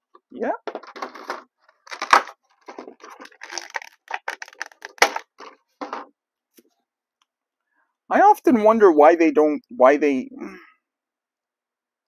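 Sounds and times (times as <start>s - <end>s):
cardboard and plastic crinkling: 0.7s - 6.1s.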